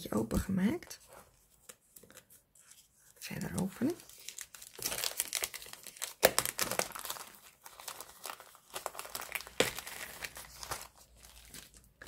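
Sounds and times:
cellophane sleeve crinkling: 0:02.8 - 0:12.0.

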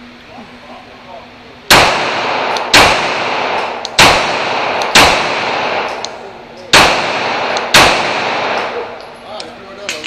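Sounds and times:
reverberating gunshot echo: 0:01.7 - 0:06.1, 0:06.7 - 0:09.0
pistol shots: 0:01.7 - 0:09.0.

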